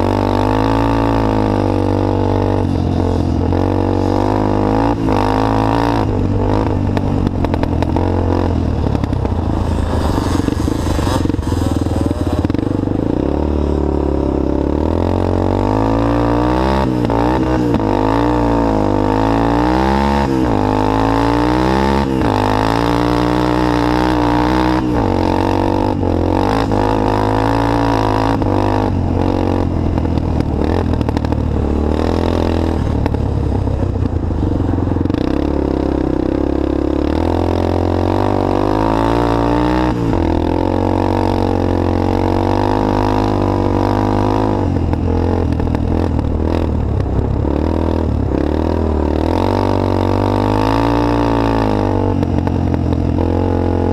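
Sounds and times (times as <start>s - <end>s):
racing engine revving: 3.6s - 13.5s.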